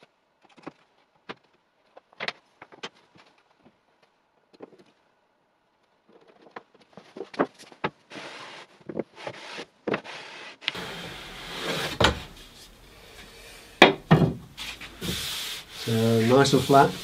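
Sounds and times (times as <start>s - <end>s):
straightedge sliding across boards: 8.1s - 17.0s.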